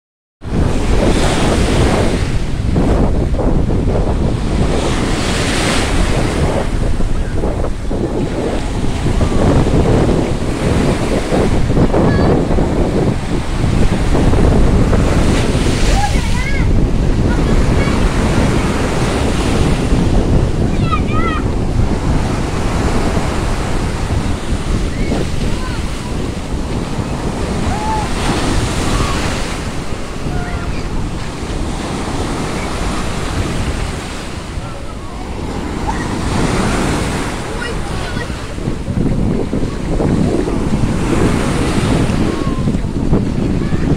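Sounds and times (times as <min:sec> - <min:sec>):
wind buffeting microphone: 0:00.4 - 0:43.9
small waves breaking: 0:20.7 - 0:43.0.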